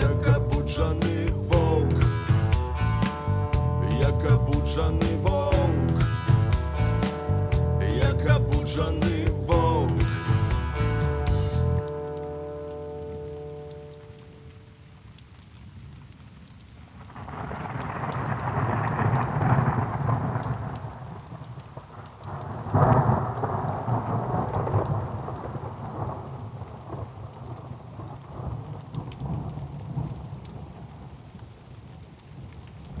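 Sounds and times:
rain falling: 0.0 - 33.0
thunder rumbling: 17.0 - 31.2.

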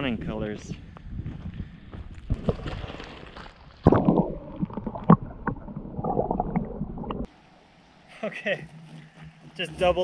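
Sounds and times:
gravel knocking underwater: 2.3 - 7.3
water splashing: 2.4 - 7.3
muffled underwater sloshing: 3.8 - 7.3.

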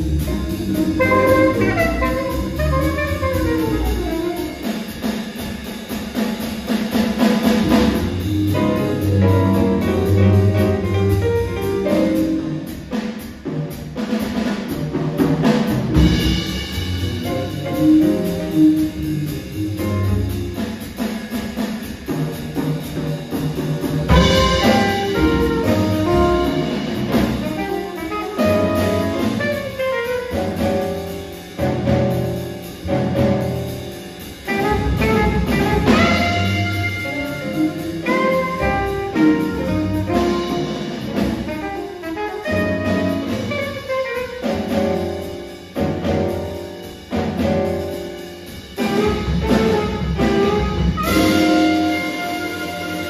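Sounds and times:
upright double bass walking: 0.0 - 4.7, 7.4 - 12.8, 14.9 - 20.7, 22.4 - 53.0
drum kit with cymbals: 0.0 - 53.0
grand piano: 0.0 - 53.0
saxophone: 0.2 - 4.8, 7.6 - 12.5, 24.1 - 31.0, 34.5 - 45.0, 48.8 - 53.0.

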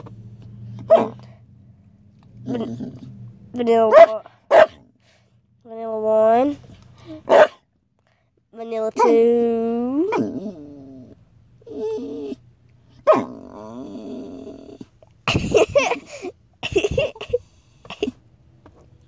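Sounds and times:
dog whining: 0.7 - 1.3, 8.9 - 15.0
dog growly whines: 2.4 - 3.3, 9.0 - 15.0.

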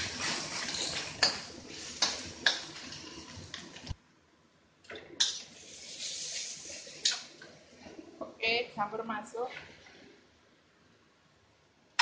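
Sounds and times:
spatula scraping a metal pan: 0.0 - 2.6
onions sizzling in hot oil: 0.0 - 4.0, 5.2 - 7.3.

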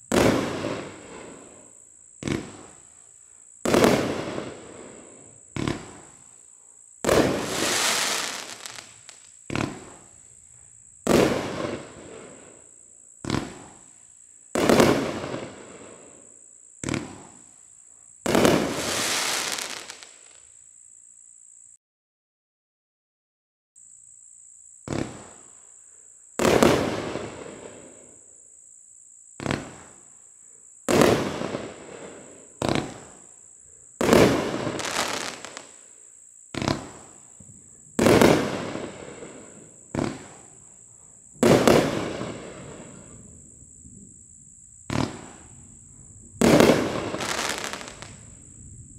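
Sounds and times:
firework launch thumps: 2.2 - 2.6, 5.6 - 6.0, 7.0 - 10.0, 16.8 - 17.3, 24.8 - 25.4, 29.4 - 29.9, 32.6 - 33.0, 36.5 - 39.0, 39.9 - 40.4, 44.9 - 45.5
firework bursting reports: 7.0 - 10.1, 18.2 - 20.3, 36.5 - 44.1, 44.8 - 48.9.

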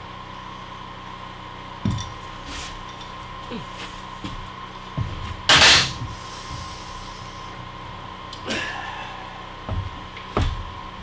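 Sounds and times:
steady low hum: 0.0 - 11.0
footsteps on plywood floor: 3.7 - 6.8, 9.6 - 10.8.

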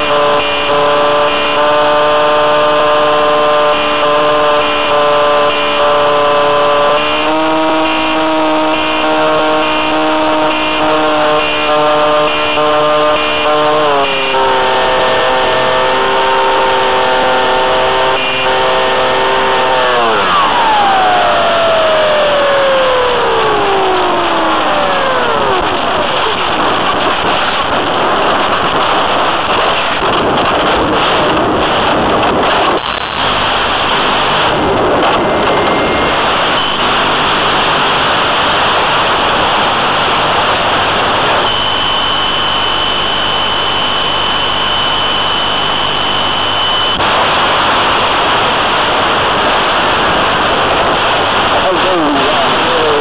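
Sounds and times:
loud static hiss: 0.0 - 53.0
faint high tone: 32.8 - 33.4.

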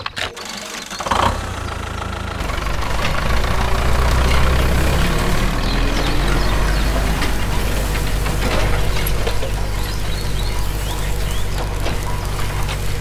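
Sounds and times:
tractor engine running: 0.0 - 13.0.

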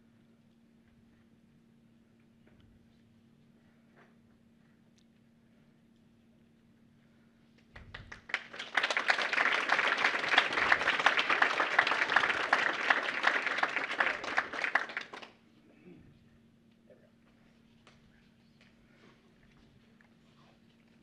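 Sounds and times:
audience applauding: 7.8 - 15.4.

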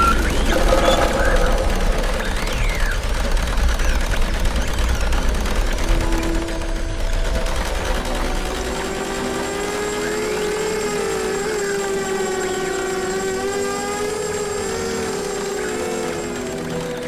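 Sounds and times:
sustained droning tone: 0.0 - 17.0.

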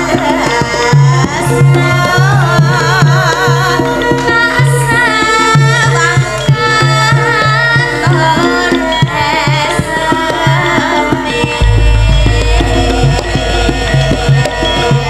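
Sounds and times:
woman singing with vibrato: 0.0 - 14.4
gamelan band playing: 0.0 - 15.0
hand drum strokes: 0.0 - 15.0
deep sustained low note: 11.6 - 15.0.

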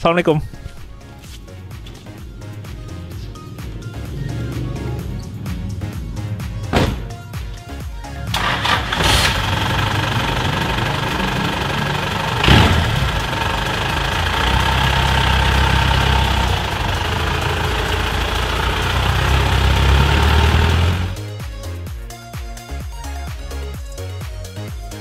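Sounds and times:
diesel engine idling: 0.9 - 21.3
vehicle pulling away: 0.9 - 21.3
loud thump: 6.3 - 7.7.

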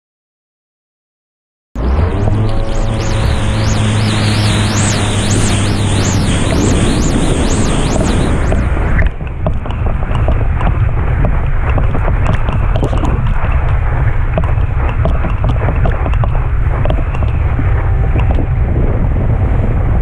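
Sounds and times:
high sweeping sounds: 1.8 - 9.1
wind buffeting microphone: 2.3 - 20.0.

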